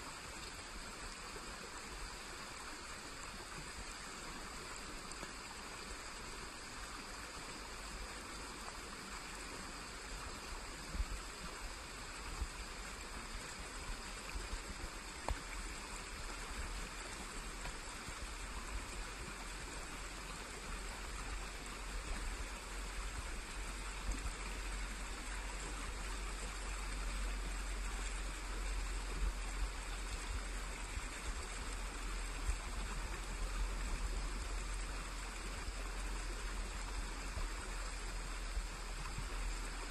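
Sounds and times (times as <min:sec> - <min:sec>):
forest stream trickling: 0:00.0 - 0:39.9.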